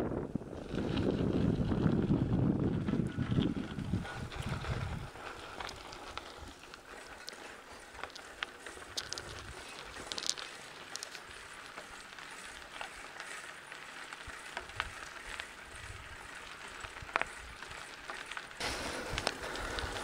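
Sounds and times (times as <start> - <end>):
wind rumbling on microphone: 0.0 - 7.0, 8.8 - 10.4, 18.6 - 20.0
bike tyres rolling on gravel: 0.0 - 20.0.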